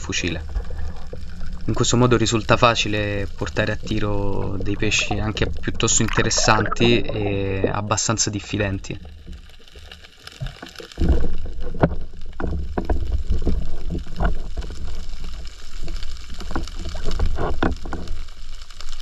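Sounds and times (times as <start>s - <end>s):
low rumble: 0.0s - 9.0s
water sloshing and gurgling: 0.0s - 19.0s.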